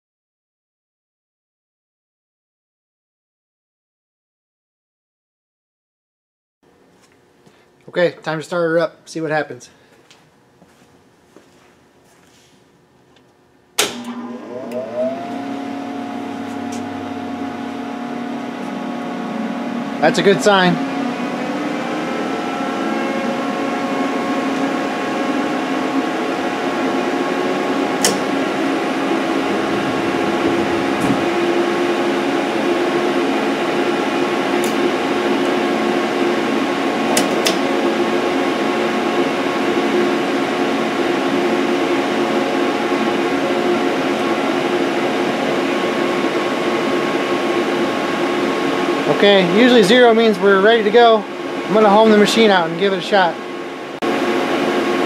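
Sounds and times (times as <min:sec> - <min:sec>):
machine hum of several tones: 0:06.7 - 0:55.0.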